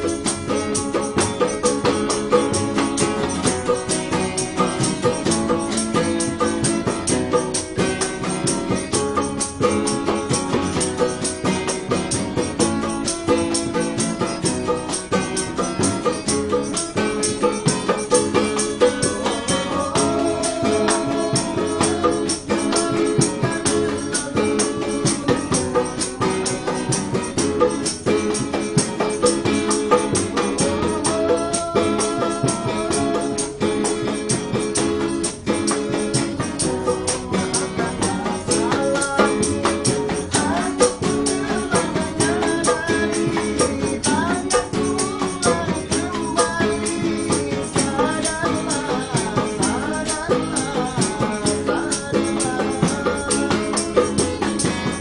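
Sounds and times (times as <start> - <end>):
strummed acoustic guitars: 0.0 - 55.0
man singing: 12.4 - 28.5, 29.9 - 34.0, 35.2 - 55.0.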